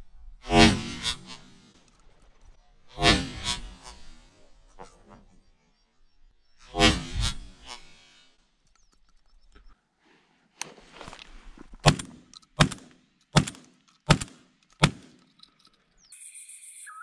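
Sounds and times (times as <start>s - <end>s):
sharp knocks: 11.8s - 15.2s.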